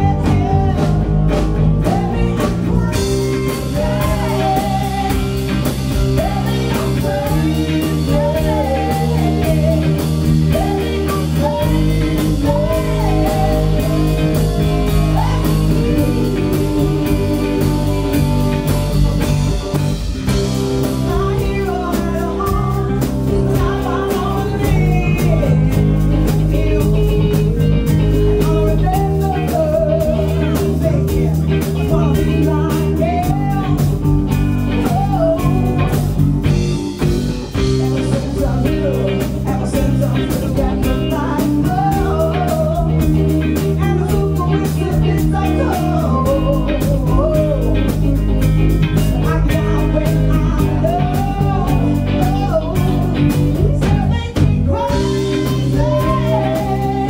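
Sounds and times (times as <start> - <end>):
drum kit beat: 0.0 - 57.0
electric guitars: 0.0 - 57.0
woman singing lead: 0.0 - 57.0.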